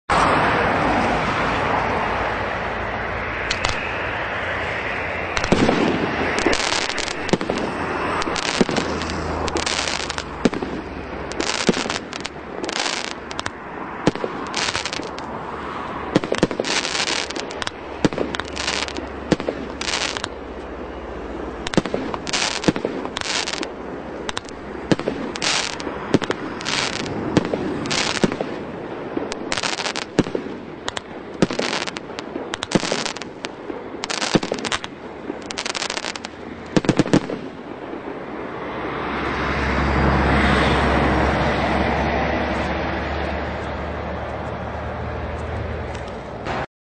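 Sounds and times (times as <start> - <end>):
fireworks bangs and bursts: 5.3 - 15.3, 16.1 - 20.5, 21.6 - 38.2.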